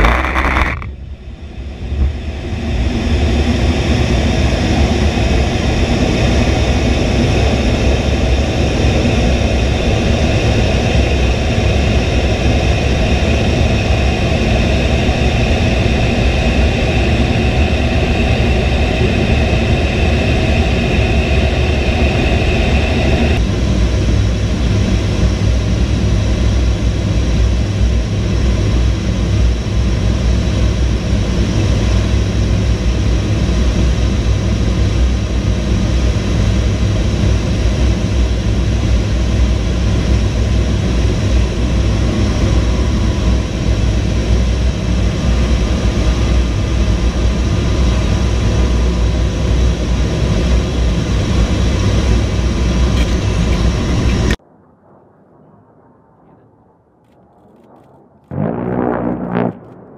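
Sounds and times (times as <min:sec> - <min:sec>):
rushing air: 0:00.0 - 0:27.6
jet engine rumble in cockpit: 0:00.0 - 0:59.9.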